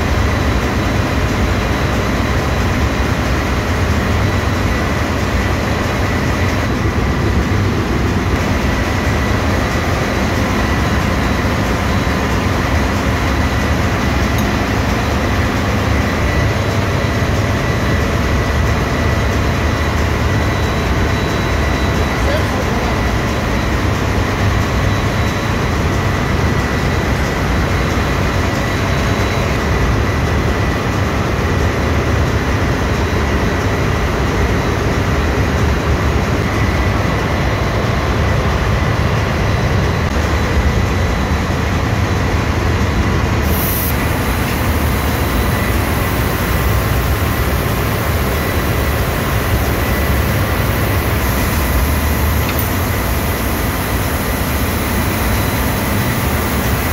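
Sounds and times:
faint high whine: 43.4 - 56.9.

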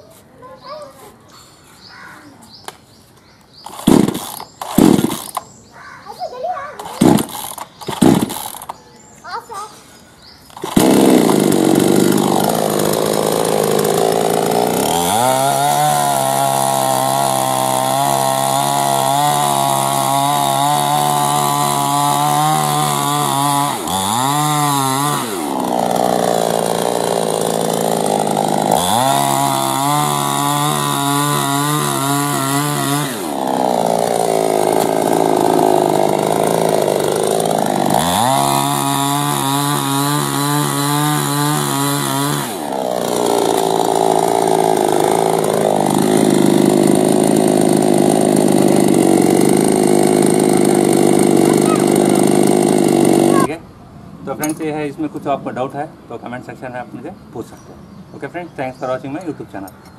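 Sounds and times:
chainsaw cutting through log: 3.6 - 5.5, 6.8 - 8.8, 10.5 - 53.6
chainsaw revving: 3.6 - 5.5, 6.8 - 8.8, 10.5 - 53.6.

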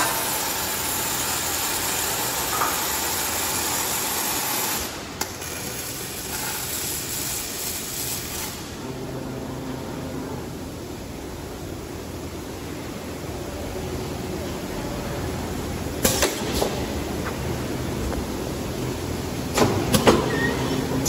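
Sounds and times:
arc welding noise: 0.0 - 10.6, 14.8 - 21.0.

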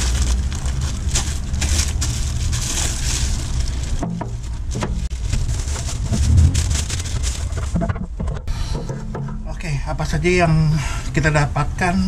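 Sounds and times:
plastic wrapping crinkling: 0.0 - 8.2
steady low hum: 0.0 - 11.8.

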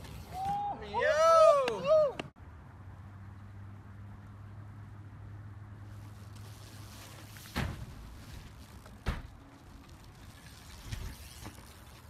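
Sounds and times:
bike impact thuds: 7.2 - 9.4.

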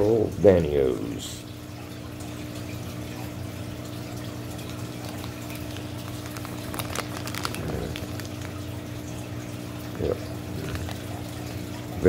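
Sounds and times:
aquarium equipment humming and bubbling: 0.0 - 12.0
plastic bag crinkling: 4.6 - 9.2, 10.5 - 11.5.

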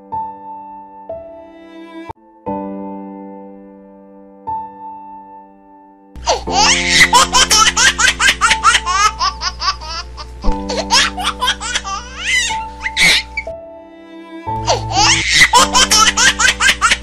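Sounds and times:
high-pitched laughter: 6.2 - 10.0, 10.7 - 13.4, 14.7 - 17.0
background music: 6.2 - 17.0.

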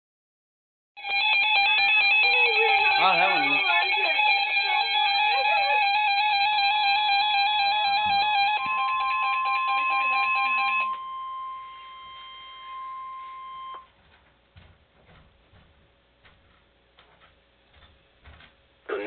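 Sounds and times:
two-tone alarm warble: 1.0 - 13.9
steady high warning tone: 1.0 - 14.0.

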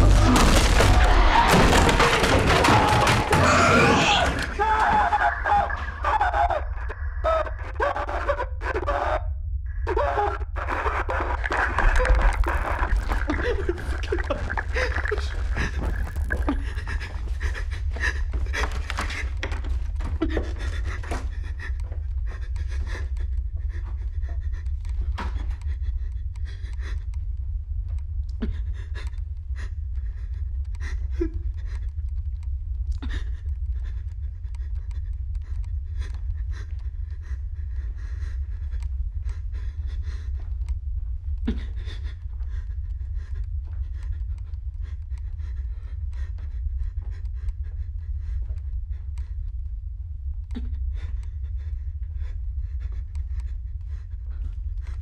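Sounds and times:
steady low rumble: 0.0 - 55.0
person panting heavily: 10.9 - 27.2, 33.0 - 49.7, 50.5 - 55.0.

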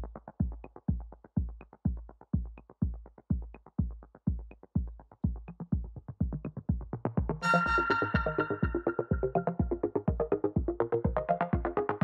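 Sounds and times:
drum machine kick beat: 0.0 - 12.0
electronic music: 7.4 - 12.0.

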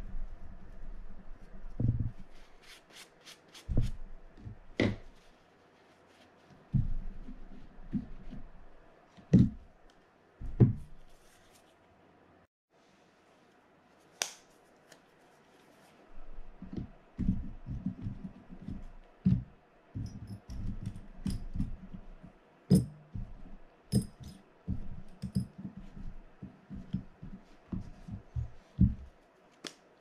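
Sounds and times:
soft knocks and rubbing: 3.7 - 5.4, 22.7 - 29.2.

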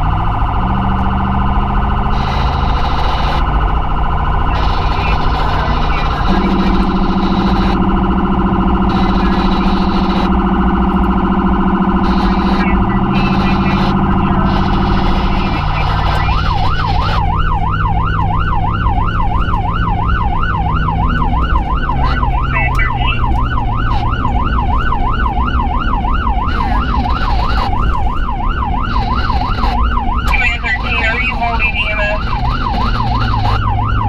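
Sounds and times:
emergency vehicle siren: 0.0 - 34.0
low steady tone: 6.2 - 15.8.

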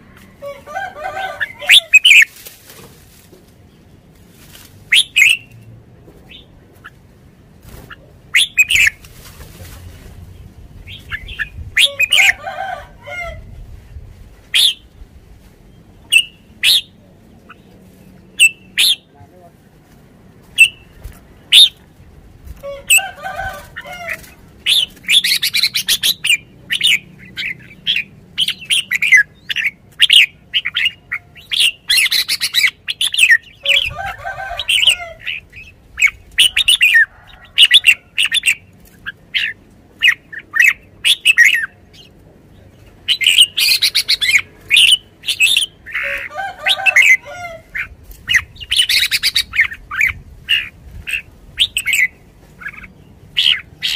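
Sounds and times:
rough bird calls: 0.0 - 2.4, 4.9 - 5.6, 7.8 - 9.0, 22.6 - 53.9
bird chirping: 4.9 - 5.6, 7.9 - 9.0, 15.6 - 19.2, 24.6 - 33.8, 34.8 - 46.2.

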